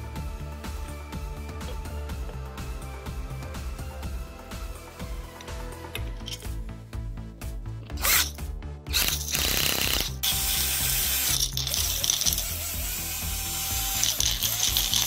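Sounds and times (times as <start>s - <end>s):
background music: 0.0s - 15.0s
parts rattling against glass: 6.0s - 6.6s, 11.3s - 12.6s, 13.9s - 15.0s
cordless drill turning: 7.9s - 15.0s.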